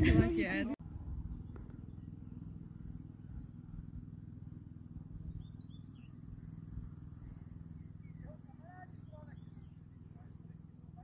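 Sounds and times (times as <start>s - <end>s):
low steady rumble: 0.0s - 11.0s
small bird chirping: 5.2s - 6.5s.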